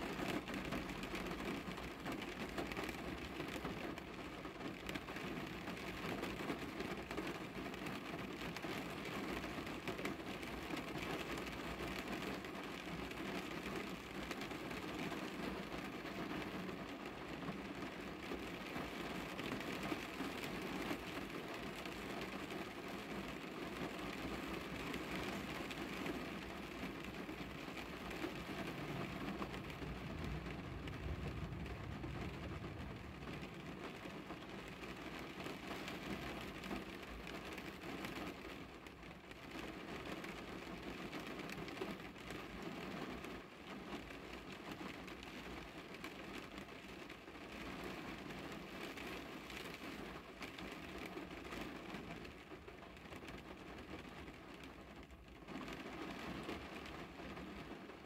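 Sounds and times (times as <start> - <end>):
rain on a car: 0.0 - 58.0
low rumble: 28.6 - 34.9.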